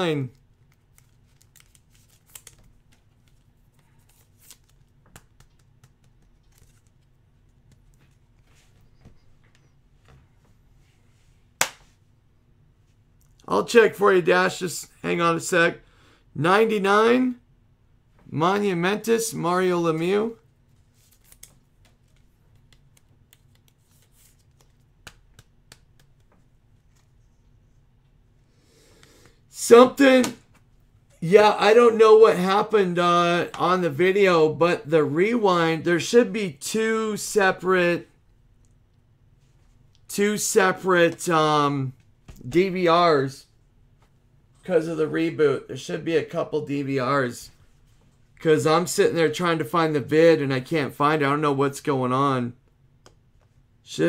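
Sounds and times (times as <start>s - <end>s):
low room hum: 0.0s - 54.0s
trading cards rustling: 0.3s - 9.7s, 19.9s - 27.6s.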